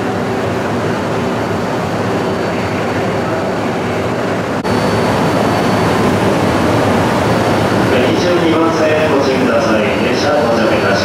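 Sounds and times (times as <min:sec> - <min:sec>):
low drone: 0:00.0 - 0:11.0
train rushing hum: 0:00.0 - 0:11.0.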